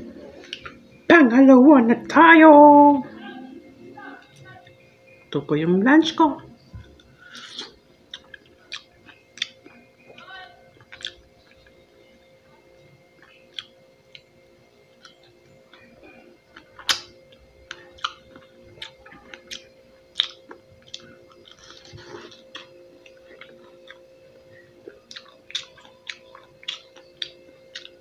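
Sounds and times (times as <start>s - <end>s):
person chewing crunchy fruit: 0.1s - 0.8s, 6.6s - 12.2s, 13.0s - 28.0s.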